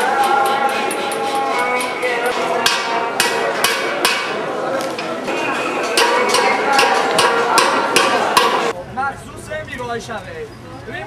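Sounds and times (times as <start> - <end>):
hammer striking copper pot: 0.2 - 8.7.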